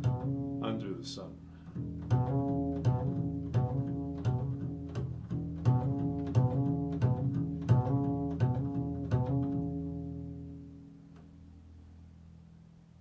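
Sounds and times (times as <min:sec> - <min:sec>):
double bass plucked notes: 0:00.0 - 0:13.0.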